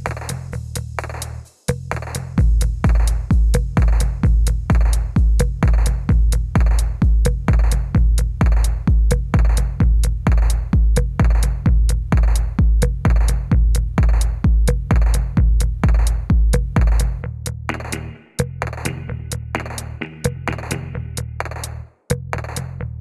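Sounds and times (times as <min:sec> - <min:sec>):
drum machine kick beat: 0:00.0 - 0:22.8
deep bass line: 0:00.0 - 0:23.0
electronic music: 0:17.7 - 0:21.2.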